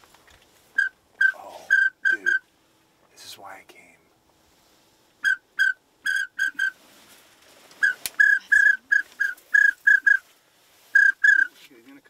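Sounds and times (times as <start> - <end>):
duck whistle toots: 5.2 - 6.8, 7.8 - 10.2, 11.0 - 11.5.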